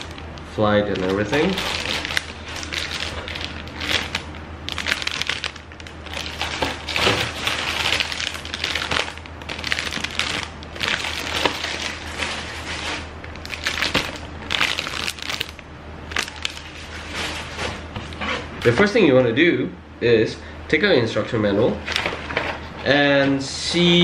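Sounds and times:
plastic bags crinkling: 0.0s - 17.7s.

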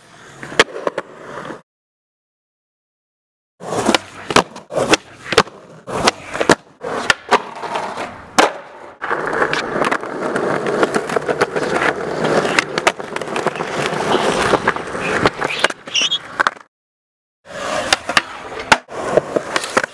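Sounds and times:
skateboard wheels rolling: 0.0s - 1.6s, 3.6s - 16.7s, 17.5s - 19.9s
skateboard clacking on ground: 3.7s - 16.7s, 17.7s - 19.9s.

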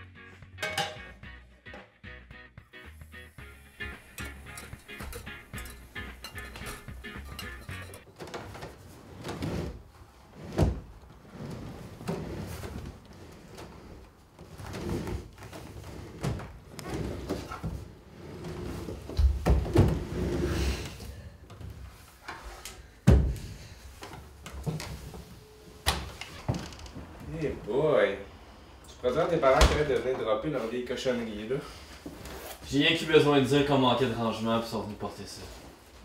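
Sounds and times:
wooden furniture scraping: 3.8s - 21.0s.

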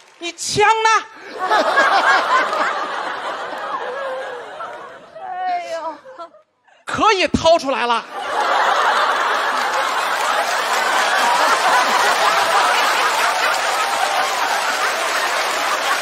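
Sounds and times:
studio audience laughing: 1.2s - 5.4s, 8.0s - 16.0s.

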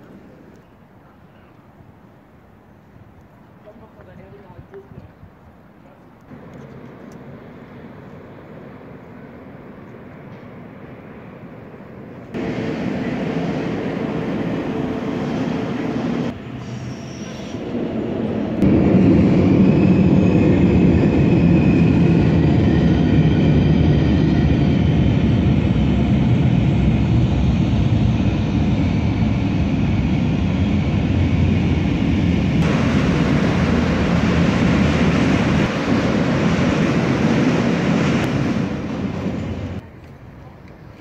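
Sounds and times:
train rumbling across bridge: 6.3s - 40.4s
faint wheel squeal: 16.5s - 17.8s.

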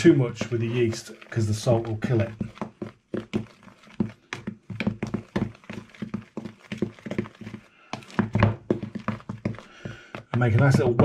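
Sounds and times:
spoon scraping through flour: 0.0s - 10.8s.

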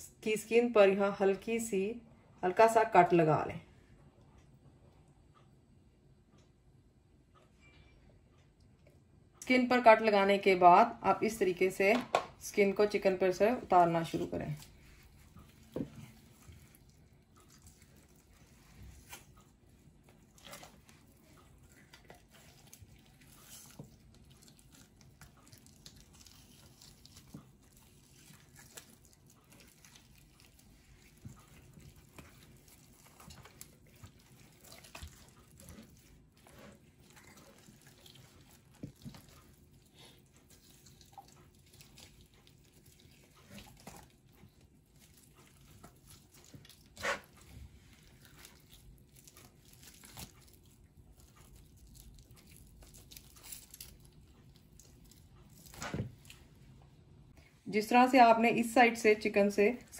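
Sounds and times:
chicken skin peeling: 14.6s - 55.9s.

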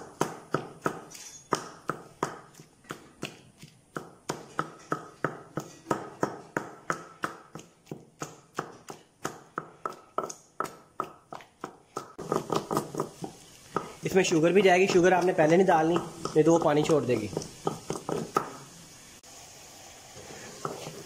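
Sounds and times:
pestle pounding in stone mortar: 0.0s - 18.6s.

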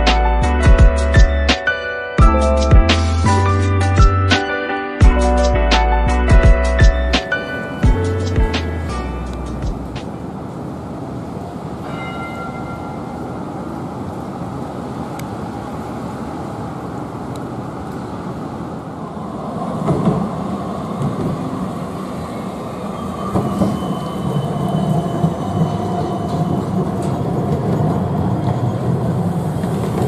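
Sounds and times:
tram passing: 0.0s - 30.0s
street hum: 5.1s - 23.1s.

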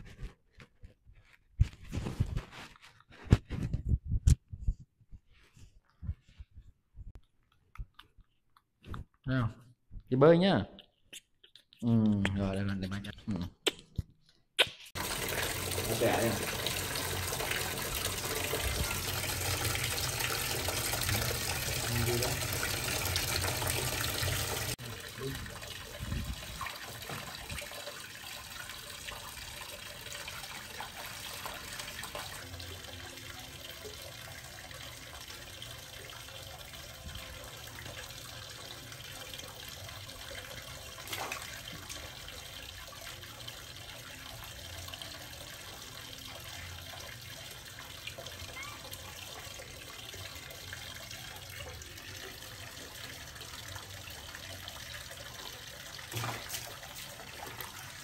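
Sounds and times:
water running: 15.0s - 58.0s.

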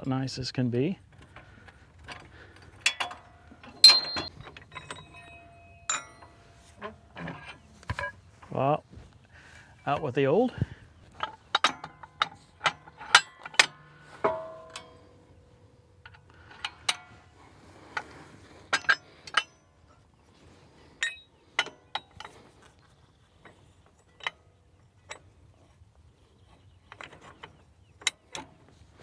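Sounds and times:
metal lift arms clanking: 2.0s - 8.2s, 11.1s - 20.1s.

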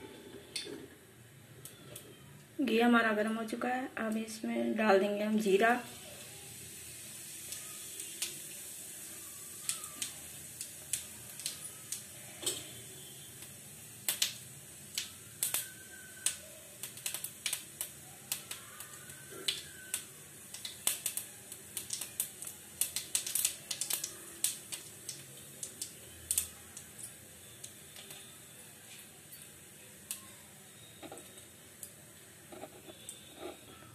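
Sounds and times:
seeds sizzling in hot oil: 1.5s - 33.9s
sharp pops and crackles: 14.0s - 27.0s.

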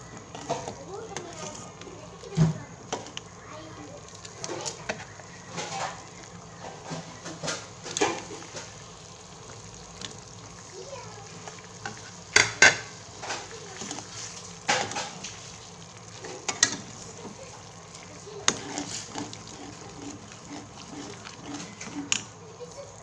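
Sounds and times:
curry simmering hiss: 0.0s - 23.0s
metal ladle scraping a pot: 17.8s - 22.3s.

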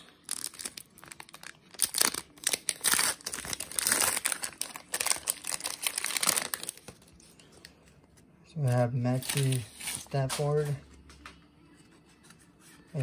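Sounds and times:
foil wrapper crinkling and tearing: 0.0s - 7.1s, 9.0s - 10.2s.

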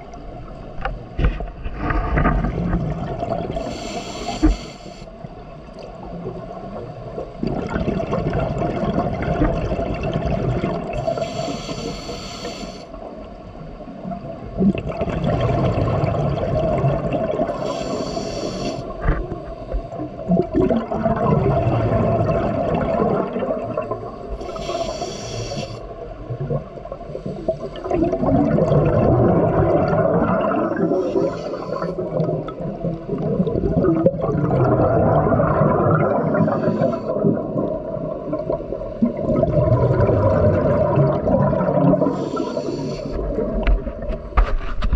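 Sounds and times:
gurgle of exhaled bubbles: 1.2s - 4.6s, 5.7s - 11.5s, 14.0s - 24.9s, 25.9s - 44.9s
scuba regulator hiss: 3.6s - 5.1s, 11.0s - 13.0s, 17.5s - 18.9s, 24.4s - 25.9s, 31.0s - 32.0s, 36.4s - 37.2s, 42.1s - 43.2s.

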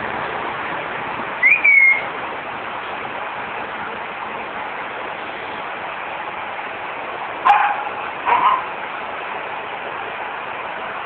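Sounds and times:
young dog barking: 7.4s - 8.7s.

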